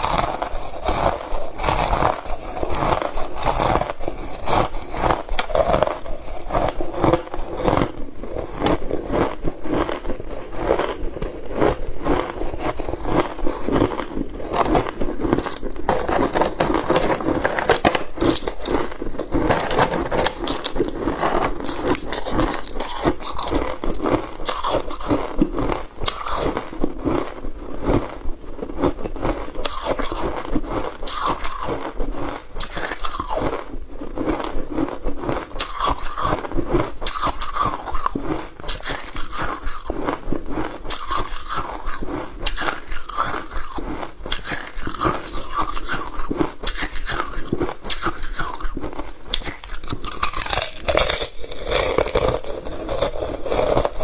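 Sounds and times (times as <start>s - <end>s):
ice crunching in teeth: 0.0s - 54.0s.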